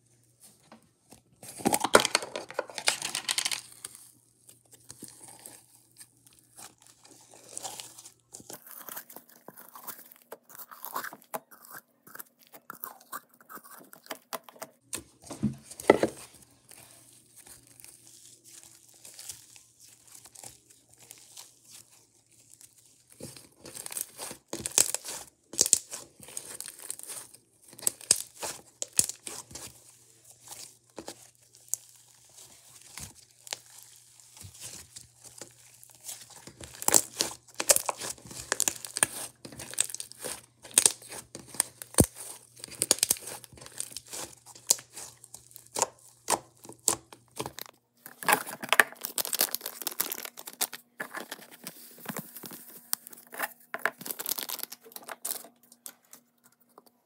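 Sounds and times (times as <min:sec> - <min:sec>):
slime crackling and popping: 0:22.4 - 0:29.7, 0:30.4 - 0:50.8, 0:54.0 - 0:55.4.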